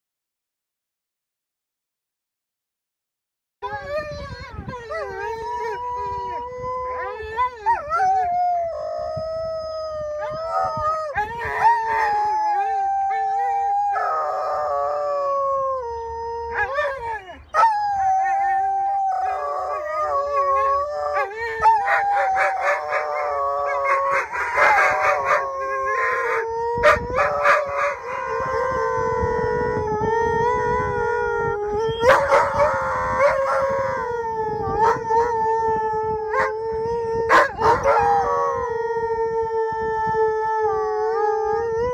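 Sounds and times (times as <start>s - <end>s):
huskies howling: 10.2s - 39.1s.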